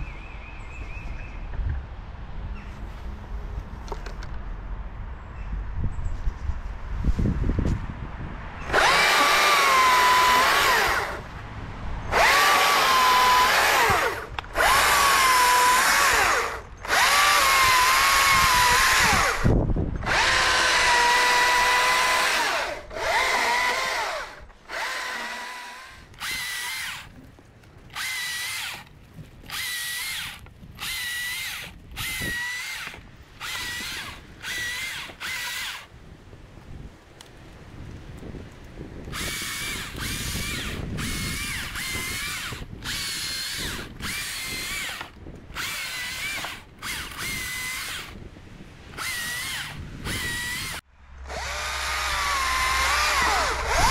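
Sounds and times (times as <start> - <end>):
electric chainsaw whining: 8.6 - 11.3, 12.0 - 27.2, 27.9 - 35.9, 39.1 - 48.3, 48.9 - 53.9.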